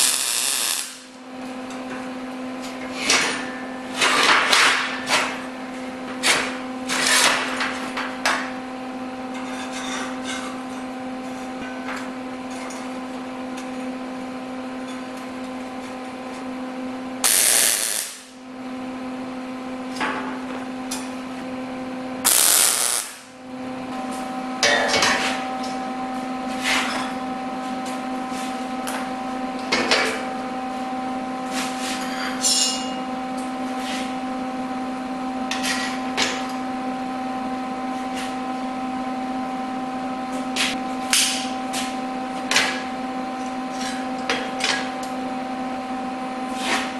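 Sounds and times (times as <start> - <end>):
welding crackle bursts: 0.0 - 1.1, 17.2 - 18.3, 22.3 - 23.3
steady hum: 0.0 - 1.3, 17.2 - 32.0.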